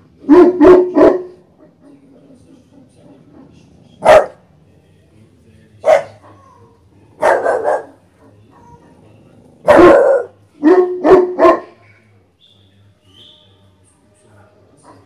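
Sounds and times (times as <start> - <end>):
puppy barking aggressively: 0.3 - 1.4, 4.0 - 4.4, 5.8 - 6.3, 7.2 - 8.0, 9.6 - 11.8.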